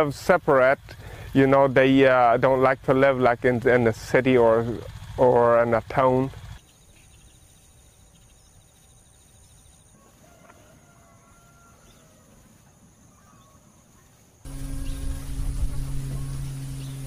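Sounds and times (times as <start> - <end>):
faint bird calls: 6.6 - 17.0
low even rumble: 14.5 - 17.0.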